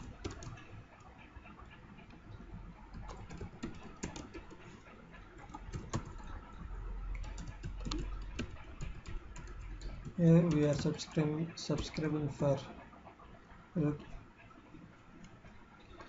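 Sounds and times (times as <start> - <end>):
keyboard typing: 0.0 - 0.8, 2.9 - 4.7, 5.3 - 12.6.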